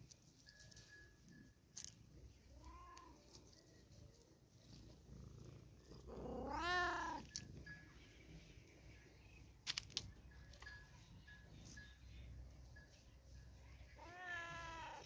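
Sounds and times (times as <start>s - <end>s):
cat meowing: 6.2s - 7.3s, 14.0s - 15.0s.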